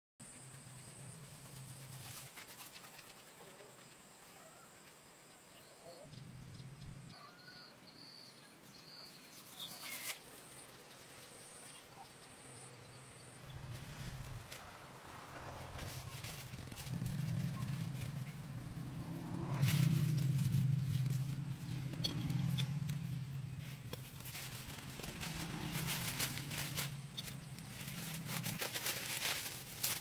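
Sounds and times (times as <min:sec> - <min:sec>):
birds calling: 0:13.2 - 0:30.0.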